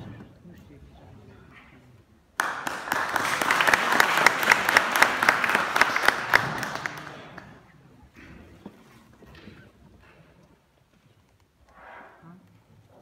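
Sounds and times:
audience applauding: 2.4 - 7.7.

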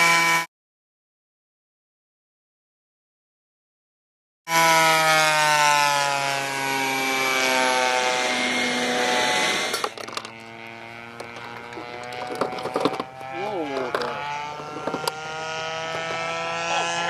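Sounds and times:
model plane engine fly-by: 0.0 - 0.5, 4.5 - 17.0.

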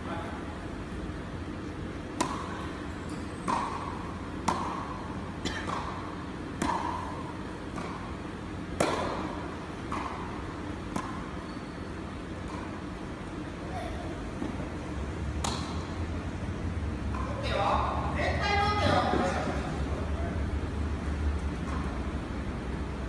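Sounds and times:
tennis balls struck by rackets: 1.6 - 13.6, 14.4 - 16.3, 17.0 - 18.0, 21.3 - 22.4.

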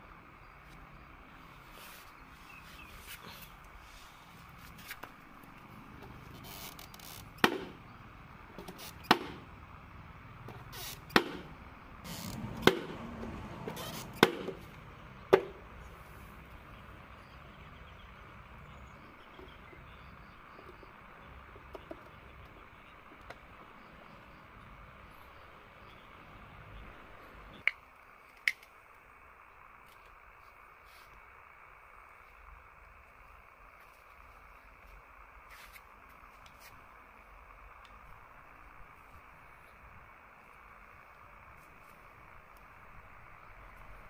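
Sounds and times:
knocks on hollow plastic: 7.4 - 7.8, 9.1 - 9.4, 11.1 - 11.5, 14.2 - 14.6, 15.3 - 15.6.

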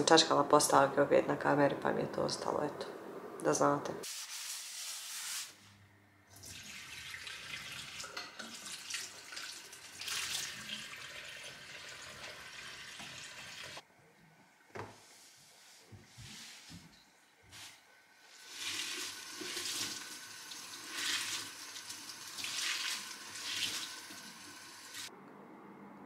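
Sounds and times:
dishes being rinsed: 6.4 - 13.8, 18.3 - 24.5
tap water running into steel sink: 6.4 - 13.8, 18.4 - 25.1.

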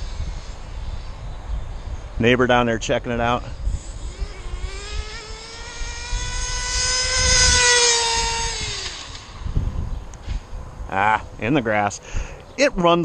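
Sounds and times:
model car engine at full throttle: 3.8 - 9.4.

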